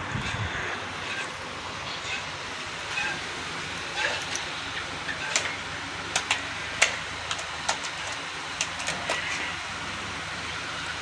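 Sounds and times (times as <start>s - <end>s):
milking machine humming: 0.0s - 11.0s
sharp clicks and ticks: 5.3s - 9.3s.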